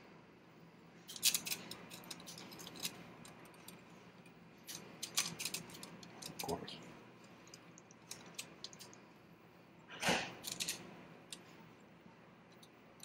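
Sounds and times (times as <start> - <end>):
small metal parts clicking: 1.1 - 6.5, 7.2 - 9.0, 10.4 - 11.5.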